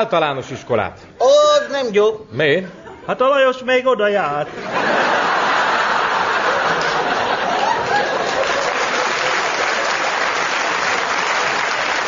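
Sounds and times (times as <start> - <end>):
audience laughter: 4.5 - 10.1
audience applauding: 5.2 - 12.0.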